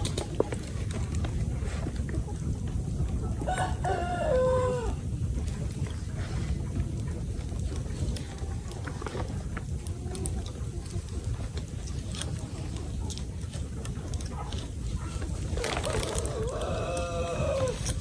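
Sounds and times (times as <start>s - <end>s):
steady low rumble: 0.0s - 18.0s
rooster crowing: 3.4s - 5.0s, 15.6s - 18.0s.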